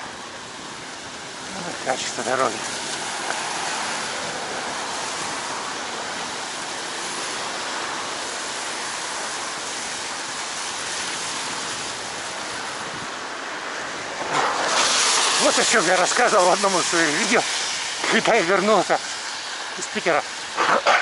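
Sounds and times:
bicycle tyres on wet asphalt: 0.0 - 21.0.

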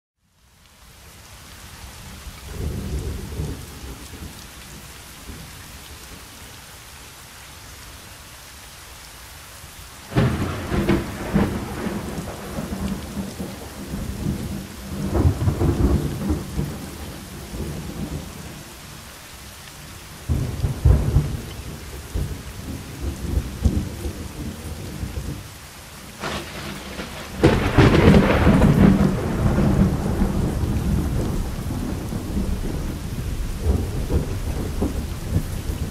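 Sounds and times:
steady rain: 0.2 - 35.9
thunder rumbling: 10.1 - 18.5, 20.3 - 25.4, 26.2 - 35.9.

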